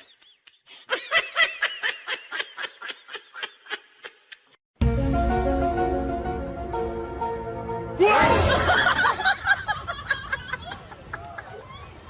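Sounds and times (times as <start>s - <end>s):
music: 4.8s - 9.0s.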